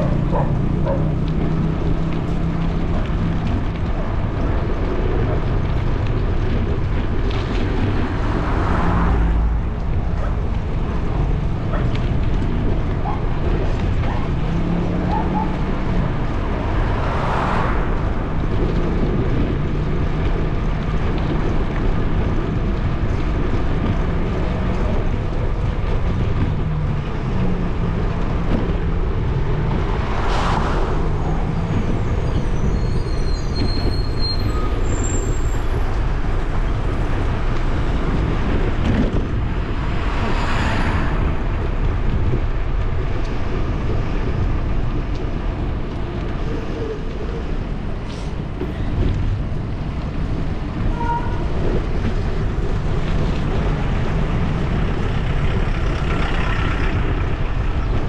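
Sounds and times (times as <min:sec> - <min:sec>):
vehicles passing by: 0:00.0 - 0:58.0
wind and road noise: 0:00.0 - 0:58.0.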